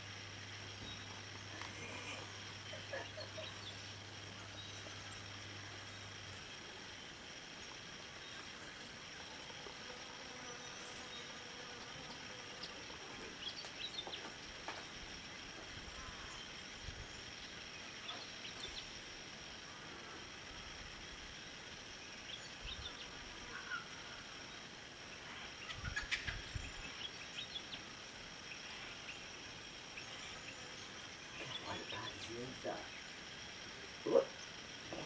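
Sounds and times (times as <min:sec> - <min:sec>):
high-pitched insect drone: 0:00.0 - 0:35.0.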